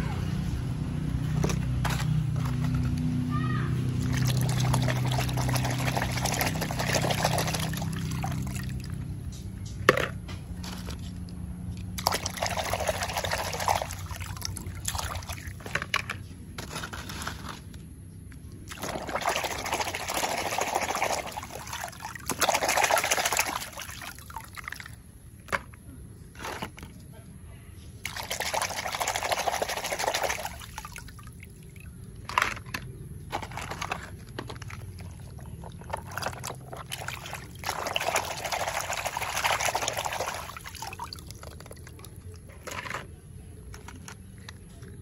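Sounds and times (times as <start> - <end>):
toy cars splashing in water: 3.8 - 9.2, 11.8 - 16.7, 18.6 - 25.5, 28.0 - 44.4.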